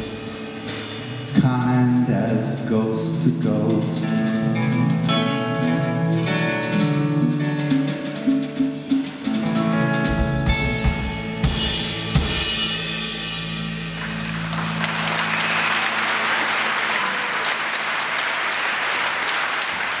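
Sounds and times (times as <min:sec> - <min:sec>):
drum and cymbal hits: 0:00.0 - 0:05.2, 0:06.2 - 0:15.2
audience applause: 0:14.0 - 0:20.0.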